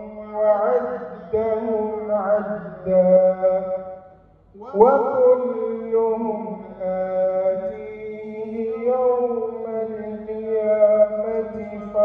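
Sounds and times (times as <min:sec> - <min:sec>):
man reciting melodically: 0:00.0 - 0:12.0.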